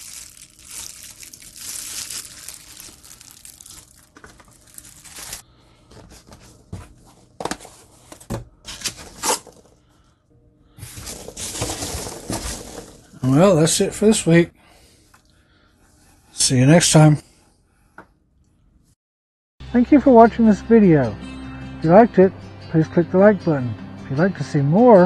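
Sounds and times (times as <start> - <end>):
packing peanuts rustling: 0.0 - 5.4, 10.9 - 13.2
plastic wrapping crinkling: 0.0 - 5.4, 11.0 - 13.2.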